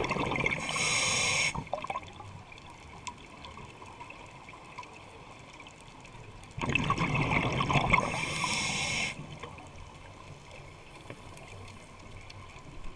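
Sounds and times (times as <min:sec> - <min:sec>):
regulator bubbling and hissing: 0:00.0 - 0:02.0, 0:06.6 - 0:09.2
faint underwater hiss: 0:00.0 - 0:02.2, 0:06.9 - 0:12.9.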